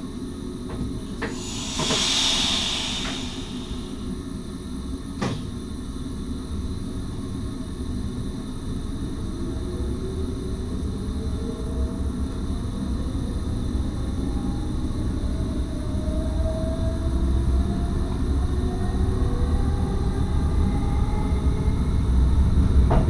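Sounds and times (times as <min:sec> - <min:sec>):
low train rumble: 0:00.0 - 0:23.0
air hiss: 0:01.2 - 0:04.6
rising motor whine: 0:01.4 - 0:04.2.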